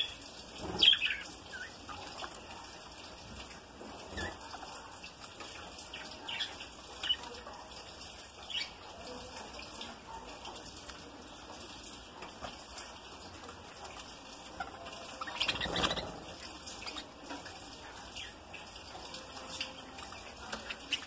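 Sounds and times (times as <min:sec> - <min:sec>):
budgerigars chirping: 0:14.5 - 0:17.1
wings fluttering: 0:14.6 - 0:17.0.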